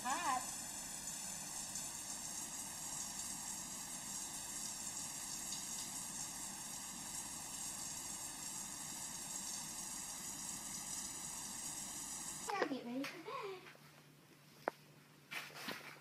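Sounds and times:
shower water spray hissing: 0.0 - 12.5.

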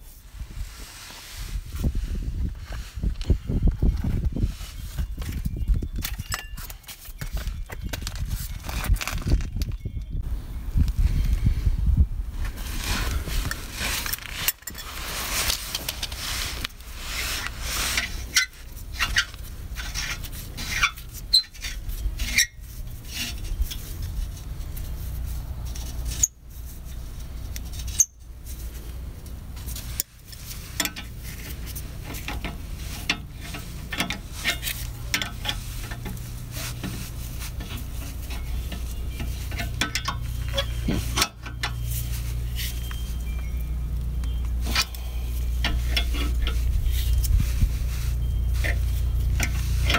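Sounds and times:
low steady hum: 0.0 - 49.9
tools clinking on metal: 6.0 - 7.0.

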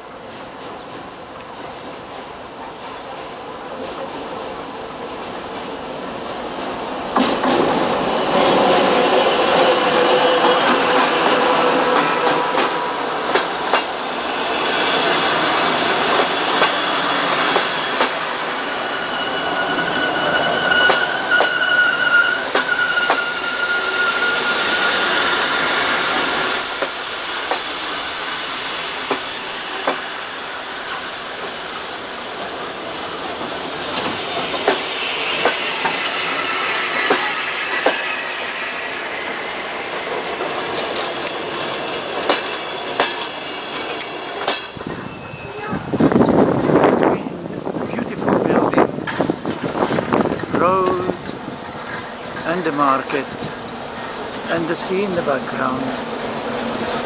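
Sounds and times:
diesel locomotive passing: 0.0 - 57.0
high metallic wheel squeal: 14.6 - 34.3, 34.9 - 39.8, 44.9 - 45.7
wheels clicking over rail joints: 40.3 - 41.4.

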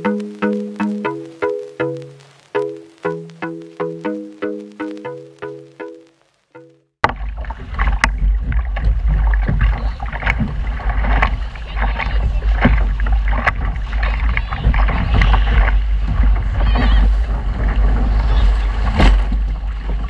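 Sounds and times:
water splashing against hull: 7.0 - 20.0
wind buffeting microphone: 7.3 - 20.0.

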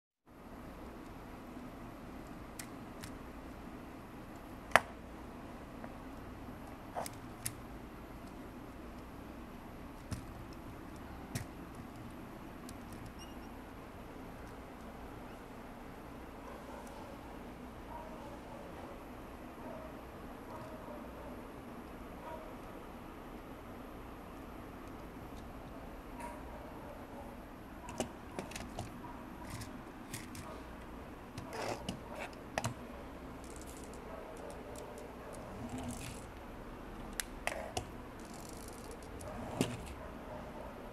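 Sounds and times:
plastic parts clicking: 27.8 - 30.5, 33.4 - 36.3, 37.1 - 40.0.

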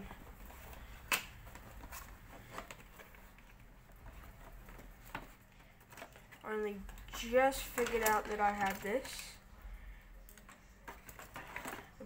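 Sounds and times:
cardboard rustling: 0.0 - 9.4.

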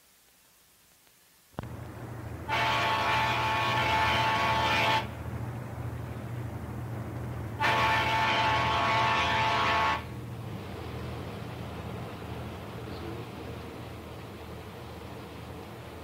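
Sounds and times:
boat engines rumbling: 1.6 - 16.0
riverboat horn blasts: 2.4 - 5.3, 7.6 - 10.3.

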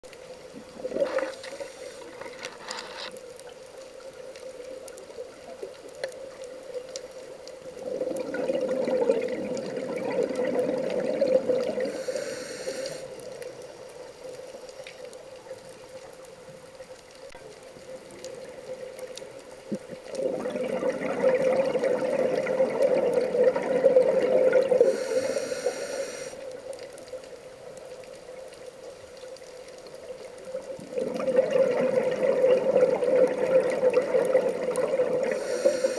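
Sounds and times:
exhaled bubbles rushing underwater: 0.6 - 2.2, 7.6 - 12.1, 19.7 - 25.4, 30.5 - 35.9
regulator inhale hisses: 1.2 - 2.4, 11.8 - 13.2, 24.8 - 26.5, 35.3 - 35.9.

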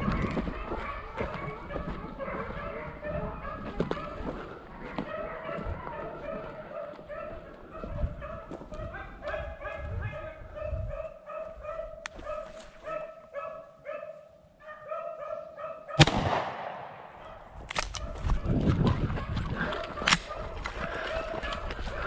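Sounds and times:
scuffling noises: 0.0 - 10.2, 11.4 - 13.2, 17.9 - 22.0
dogs baying: 0.0 - 16.1, 17.2 - 22.0
shotgun shot: 16.0 - 18.1.

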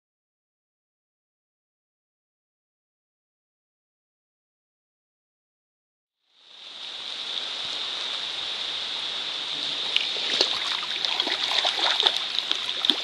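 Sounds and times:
rain: 6.2 - 13.0
rushing creek water: 6.3 - 13.0
sharp drips and splashes: 6.5 - 13.0.

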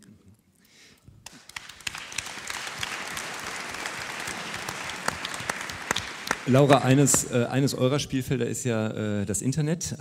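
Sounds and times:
audience applauding: 1.2 - 7.7.

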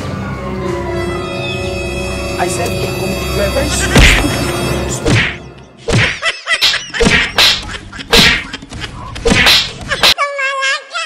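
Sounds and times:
slaps on a head: 5.9 - 8.5, 9.3 - 10.2.

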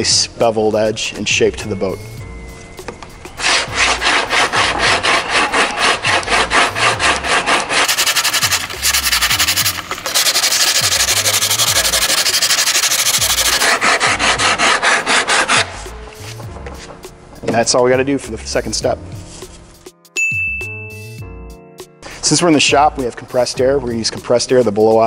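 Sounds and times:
sandpaper rasping: 3.3 - 16.4.

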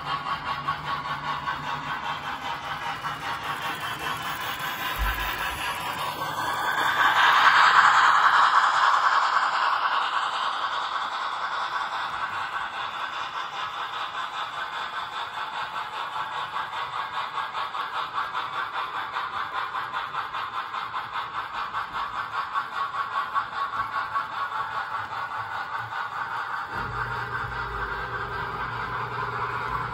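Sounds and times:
model train wheels clicking on rails: 0.0 - 29.9.

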